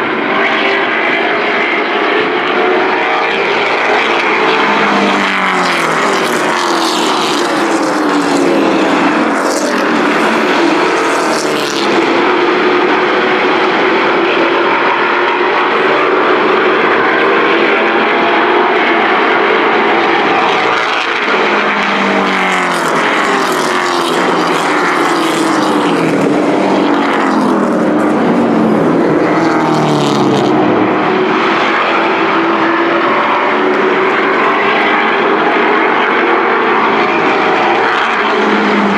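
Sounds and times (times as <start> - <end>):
race truck engines passing: 0.0 - 38.9.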